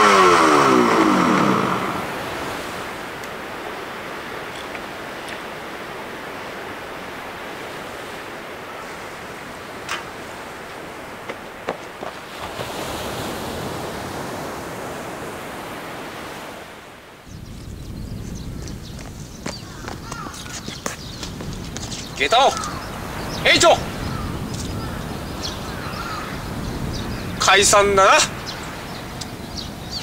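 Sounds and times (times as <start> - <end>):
wind buffeting microphone: 0.0 - 15.8, 17.2 - 30.0
rushing wind: 0.0 - 30.0.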